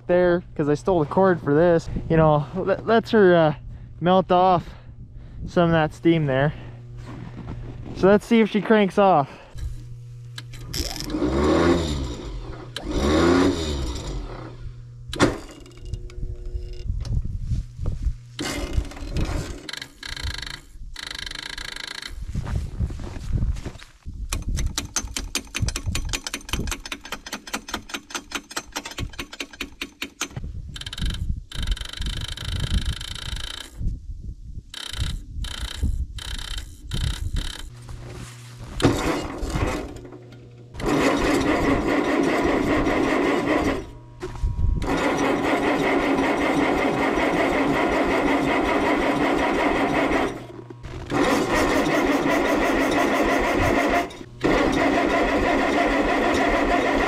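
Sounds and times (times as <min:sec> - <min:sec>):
rapid starter clicking: 0:10.4 - 0:16.1, 0:24.3 - 0:33.7, 0:38.8 - 0:57.0
tractor starter cranking: 0:10.4 - 0:16.1, 0:18.4 - 0:22.2, 0:24.3 - 0:33.8, 0:34.7 - 0:37.7, 0:38.7 - 0:57.0.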